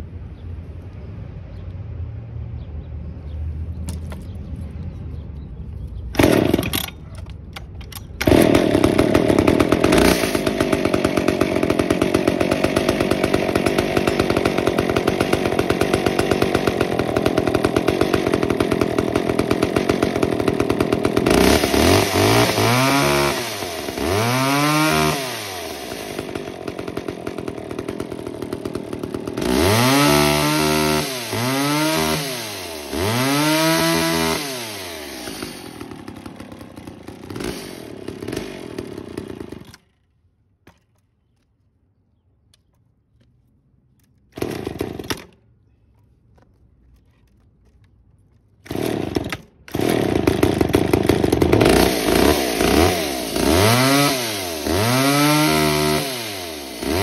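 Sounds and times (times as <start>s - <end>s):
chainsaw idling and revving: 6.2s - 7.0s, 8.2s - 40.1s, 44.3s - 45.4s, 48.6s - 57.0s.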